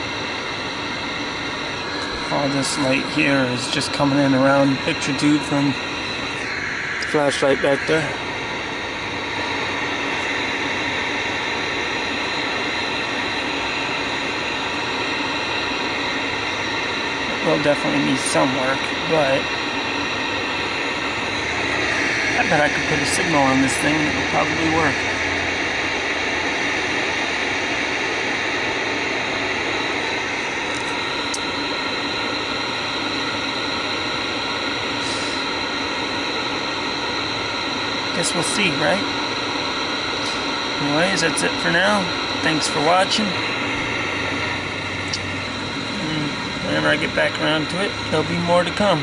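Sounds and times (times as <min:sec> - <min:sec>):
television static hiss: 0:09.3 - 0:32.1, 0:37.8 - 0:49.0.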